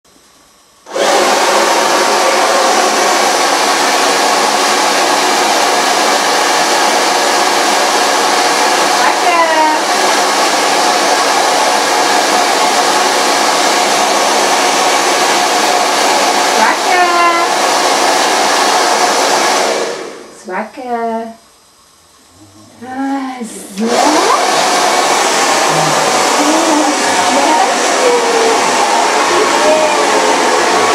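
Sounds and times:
hair dryer blowing whir: 0.8 - 20.4, 23.5 - 30.9
hair dryer switch: 23.8 - 30.9.

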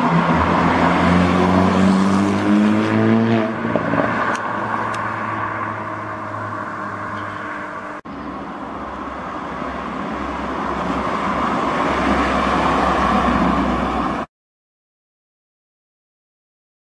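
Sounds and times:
car driving past: 0.1 - 8.0.

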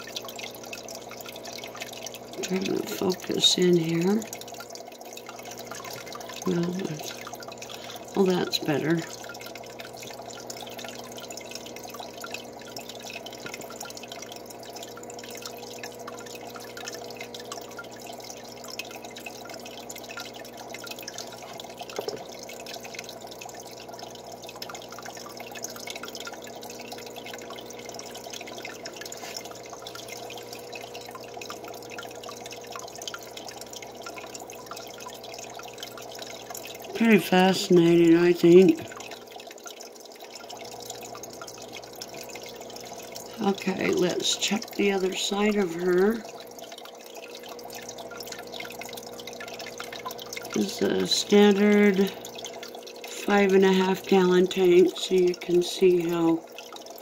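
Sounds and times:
aquarium water trickling: 0.0 - 57.0.

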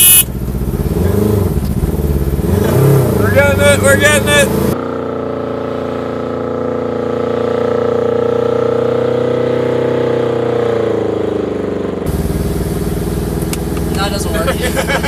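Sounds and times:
engine at high revs: 0.0 - 15.0
rough close engine: 0.1 - 6.1, 12.0 - 15.0.

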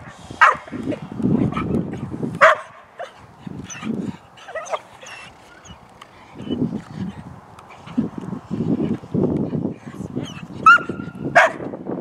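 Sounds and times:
dog barking: 0.4 - 0.7, 2.4 - 3.8, 10.6 - 11.7
dog yipping and whining: 3.0 - 5.8, 6.4 - 6.7, 10.2 - 11.0.

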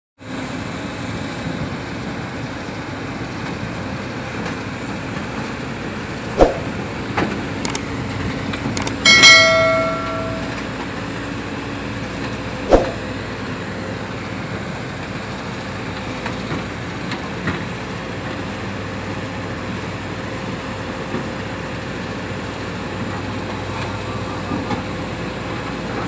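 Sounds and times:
excavator diesel engine running: 0.3 - 26.0
loud metallic clang: 8.8 - 10.8
metal knocks: 8.9 - 10.7.

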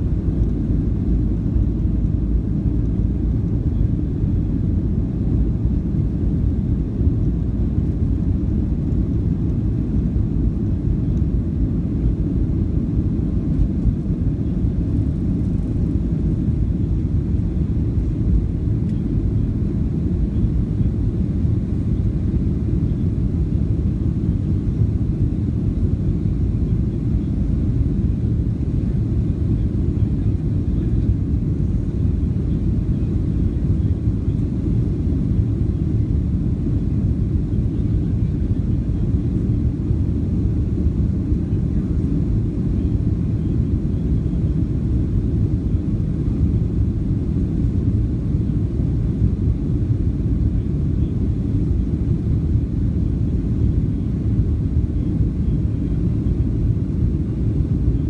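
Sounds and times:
jet engines rumbling: 0.0 - 58.0.

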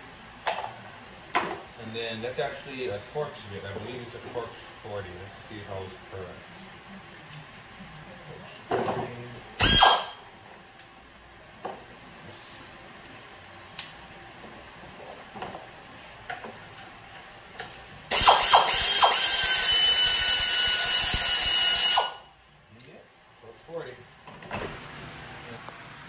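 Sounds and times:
air wrench whining: 9.6 - 10.2, 18.1 - 22.3.

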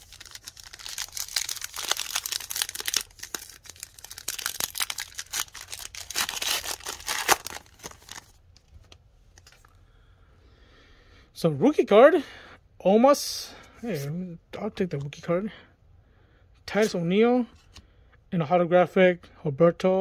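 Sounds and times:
card pack wrapper tearing and crinkling: 0.0 - 9.7.

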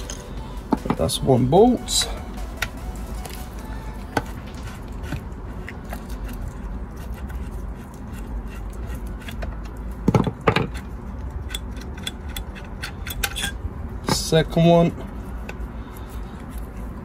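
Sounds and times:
screwdriver clicks and scrapes: 4.2 - 13.6.

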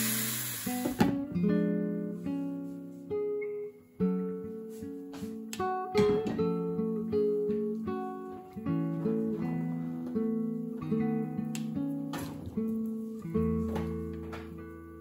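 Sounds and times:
food sizzling in a pan: 0.0 - 1.0
acoustic guitar music: 0.6 - 15.0.

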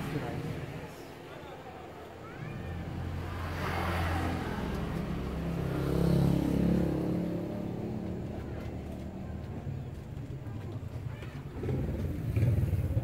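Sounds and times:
vehicle engine passing: 2.2 - 9.8.

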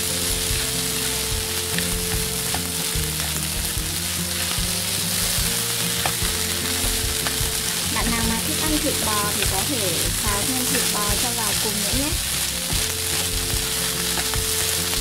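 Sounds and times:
rice sizzling in a frying pan: 0.0 - 15.0
utensil clicking against pan: 5.3 - 15.0.

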